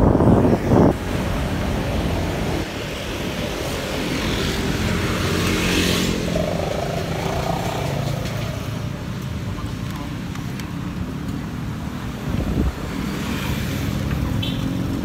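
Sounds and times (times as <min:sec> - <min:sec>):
wind buffeting microphone: 0:00.0 - 0:05.4, 0:11.7 - 0:13.2
vehicle engines running close by: 0:00.0 - 0:15.0.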